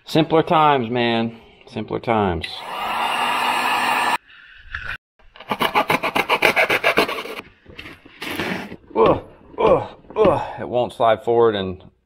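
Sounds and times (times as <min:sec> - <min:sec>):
heat gun blowing: 0:02.6 - 0:04.2.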